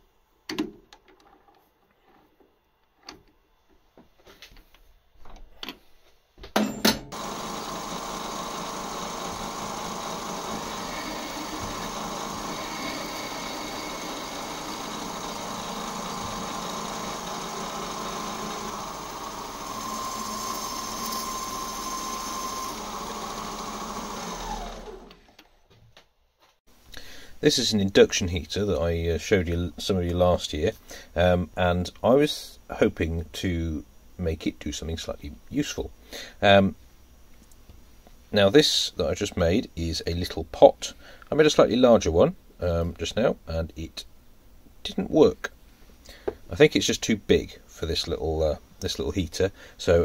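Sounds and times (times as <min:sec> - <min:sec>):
metal lathe running: 0:07.1 - 0:25.2.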